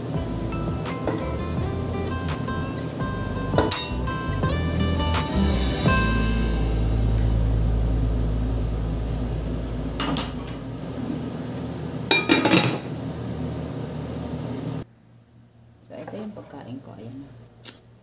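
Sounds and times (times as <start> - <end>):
low hum: 0.0 - 12.1.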